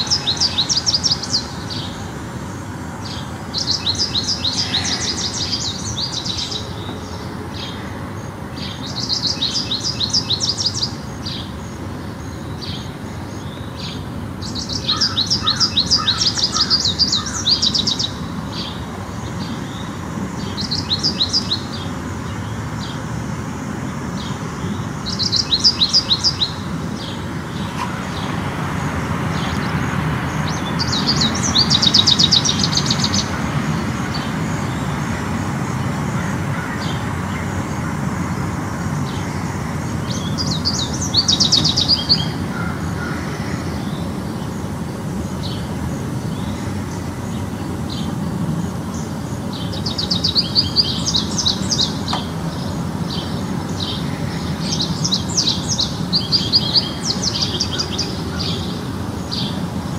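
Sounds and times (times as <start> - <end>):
low traffic rumble: 0.0 - 59.9
songbird singing: 0.0 - 59.9.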